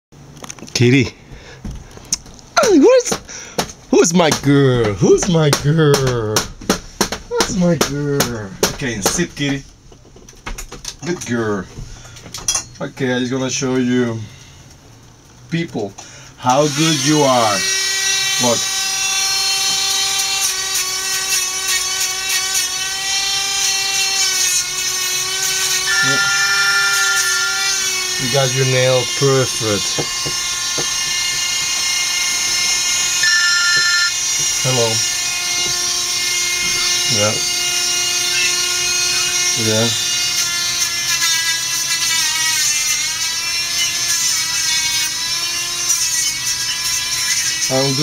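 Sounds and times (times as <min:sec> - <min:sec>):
electric nail grinder whining: 0:16.4 - 0:48.0
grinder scratching on nail: 0:16.4 - 0:48.0.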